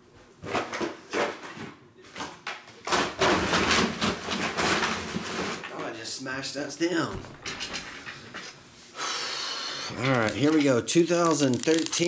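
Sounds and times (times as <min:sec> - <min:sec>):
packaging rustling and scraping: 0:10.0 - 0:12.0.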